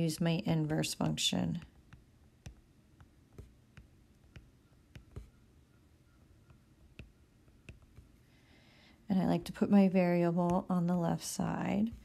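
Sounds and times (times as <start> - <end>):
stylus tapping on glass screen: 1.8 - 5.4, 6.5 - 8.1.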